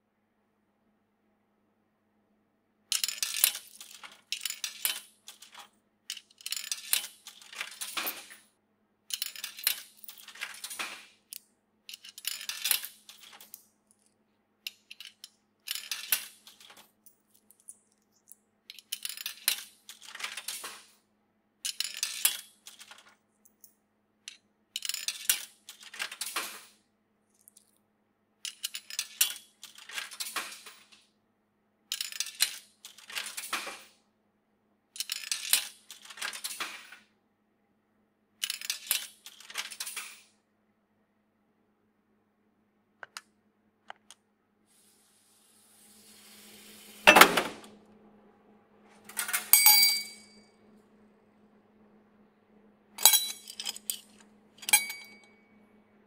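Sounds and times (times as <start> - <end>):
coins clinking through coin mechanism: 2.9 - 8.4, 9.1 - 21.0, 21.6 - 26.8, 28.4 - 31.0, 31.9 - 34.0, 35.0 - 37.0, 38.4 - 40.3, 47.1 - 47.7, 49.1 - 50.4, 53.0 - 55.4.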